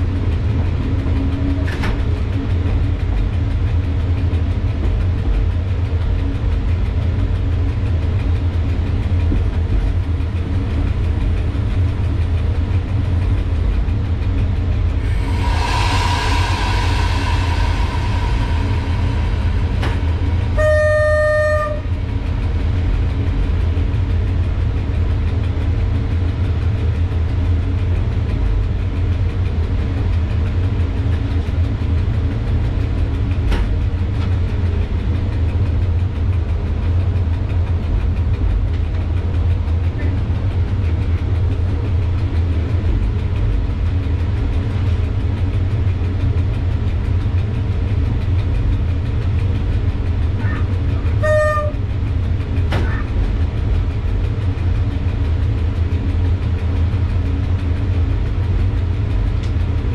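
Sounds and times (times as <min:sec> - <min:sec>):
electric locomotive rumble: 0:00.0 - 0:59.9
locomotive horn: 0:20.5 - 0:21.9, 0:51.2 - 0:51.9.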